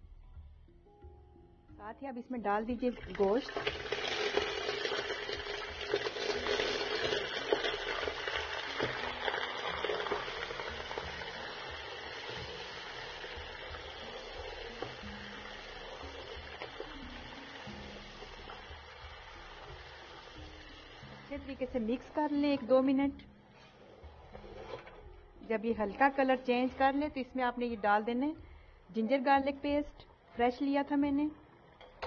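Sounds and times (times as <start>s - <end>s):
meat sizzling in oil: 3.2s - 22.2s.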